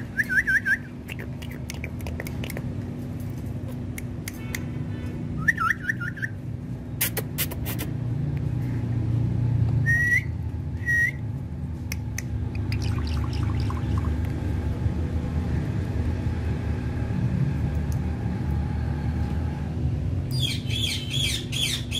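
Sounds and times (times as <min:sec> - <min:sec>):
parakeet chirping: 0:20.3 - 0:21.9.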